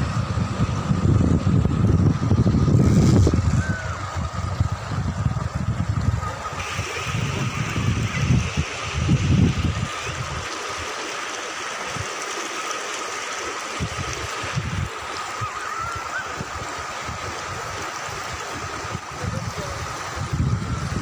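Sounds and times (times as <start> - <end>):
low rumbles: 0.0 - 6.6
river water rushing: 0.0 - 21.0.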